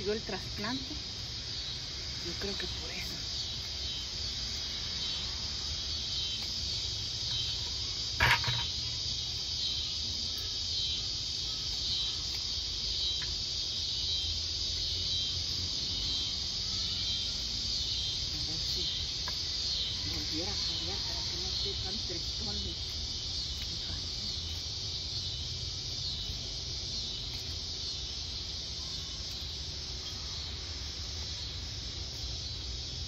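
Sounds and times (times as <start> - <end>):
steady high hiss: 0.0 - 33.0.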